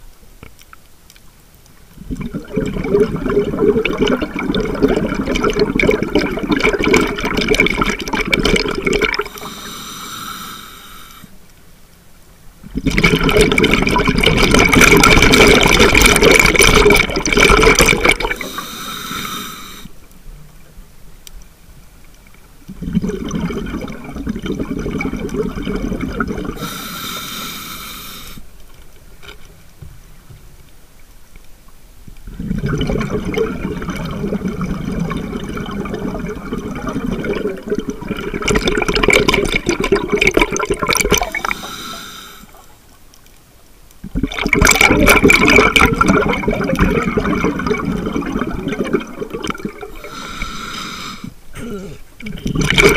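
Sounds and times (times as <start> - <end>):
exhaled bubbles gurgling: 1.9 - 10.1, 12.6 - 19.8, 22.7 - 27.6, 32.2 - 42.7, 44.0 - 52.9
regulator inhalation hiss: 9.3 - 11.4, 18.4 - 20.0, 26.6 - 28.5, 41.4 - 42.6, 49.9 - 51.4.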